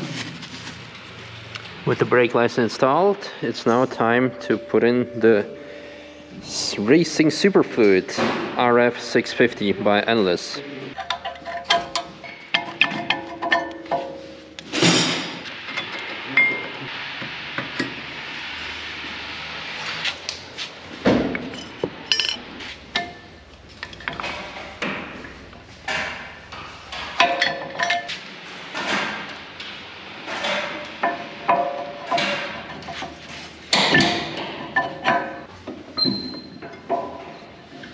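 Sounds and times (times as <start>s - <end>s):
metal tools clinking: 11.0s - 14.4s, 21.4s - 24.8s, 27.2s - 28.2s.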